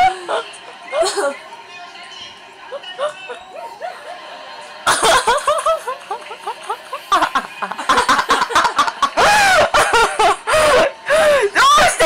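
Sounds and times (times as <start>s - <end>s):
people laughing hard: 2.6s - 12.0s.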